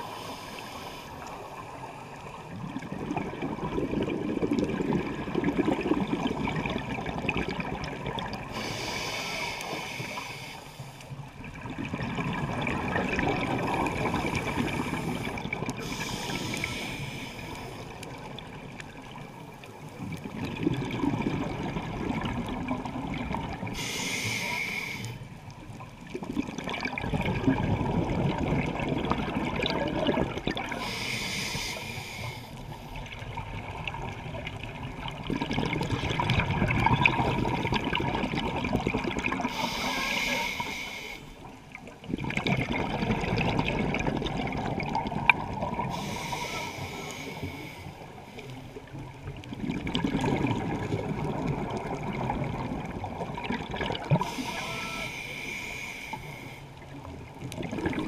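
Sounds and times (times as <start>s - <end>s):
regulator inhalation hiss: 0.0s - 1.3s, 8.5s - 11.1s, 14.1s - 17.9s, 23.8s - 25.2s, 30.8s - 32.9s, 39.5s - 41.3s, 45.9s - 48.1s, 54.2s - 56.7s
exhaled bubbles underwater: 0.0s - 10.4s, 11.1s - 58.0s.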